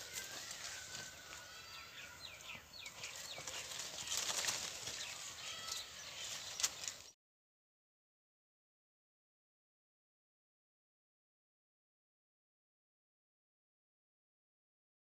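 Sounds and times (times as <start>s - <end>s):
leaves rustling: 0.0s - 7.2s
small birds chirping: 0.0s - 7.2s.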